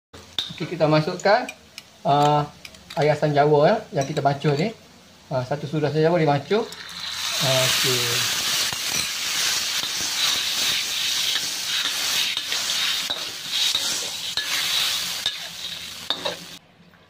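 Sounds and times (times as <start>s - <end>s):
sauce sizzling in a wok: 0.2s - 16.6s
spatula scraping a pan: 8.6s - 16.4s.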